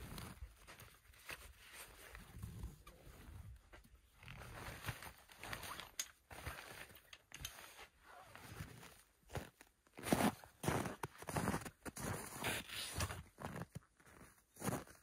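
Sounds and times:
boots shifting in snow: 8.6 - 15.0.

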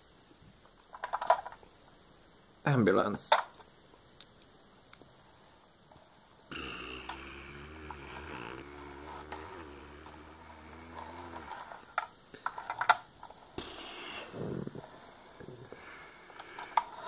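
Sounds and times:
plastic toy clicks and knocks: 0.9 - 1.6
short falling vocal sound: 6.5 - 11.5
person humming engine noise: 6.5 - 11.9.

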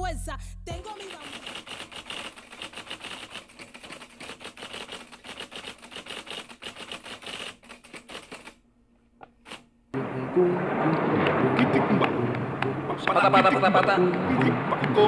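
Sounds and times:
typewriter keys clacking: 0.9 - 8.6.

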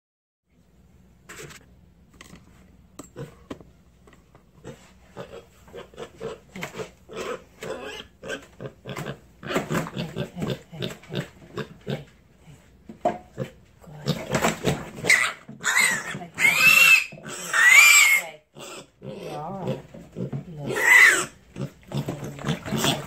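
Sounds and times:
pig grunting and squealing: 4.6 - 12.1, 13.3 - 23.0.

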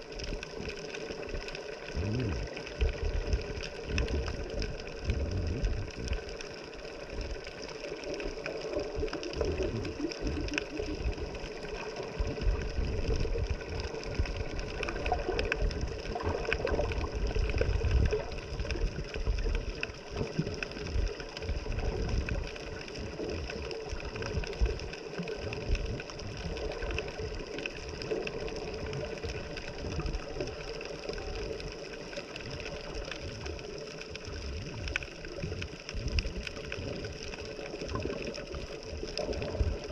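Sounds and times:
uneven low rumble: 1.9 - 6.5.

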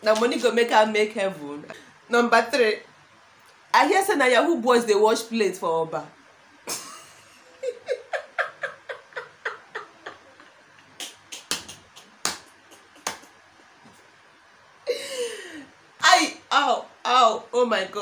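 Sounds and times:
woman laughing hard: 6.7 - 11.0, 14.9 - 15.6.

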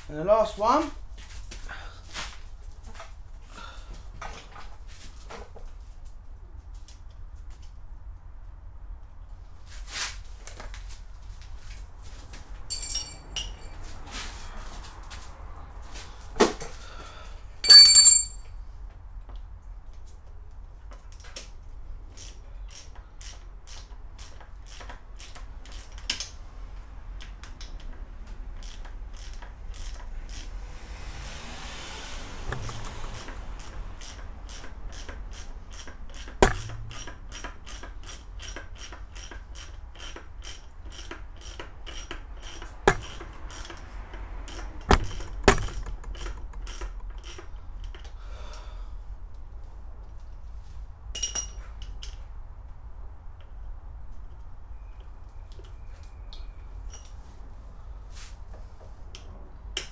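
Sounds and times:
sharp metal knocks: 17.6 - 18.4, 36.2 - 37.2
socket ratchet clicking: 28.6 - 30.5, 32.6 - 43.8, 44.5 - 48.0.

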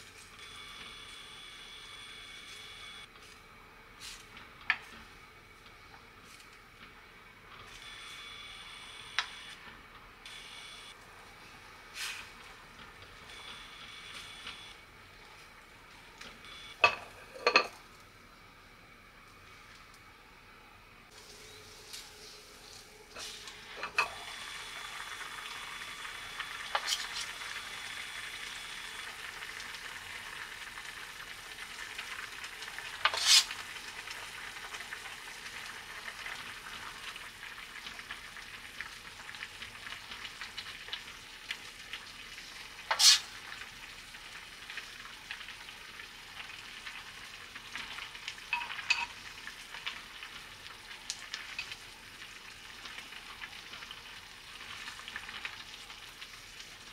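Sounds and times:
broth simmering and bubbling: 10.9 - 56.9
metal spoon clinking on pot: 48.5 - 49.2.

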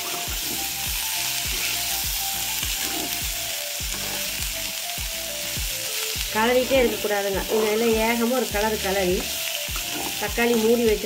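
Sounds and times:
metal spoon scraping a pan: 0.0 - 0.8, 1.4 - 2.0, 2.6 - 3.3, 3.9 - 4.4, 9.2 - 10.8
oil sizzling: 0.0 - 11.0.

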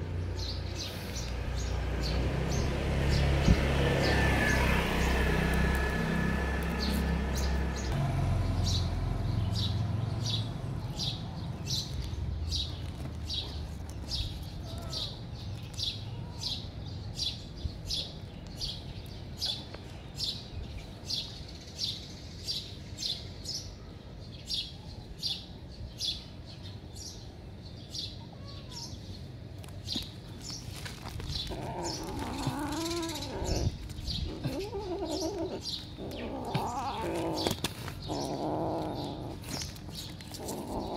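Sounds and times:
small bird chirping: 26.1 - 40.9
kitten meowing: 28.3 - 29.0.

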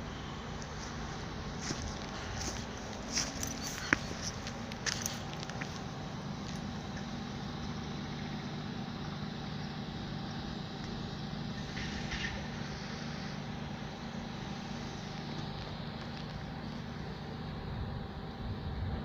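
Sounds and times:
engine idling rumble: 0.0 - 19.0
faint whine: 0.0 - 19.0.

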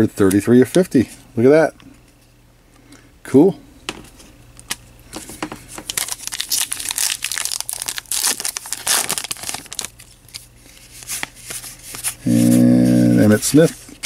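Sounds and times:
wrapper tearing and crinkling: 5.8 - 11.6
cards rustling and clicking: 13.2 - 14.0.

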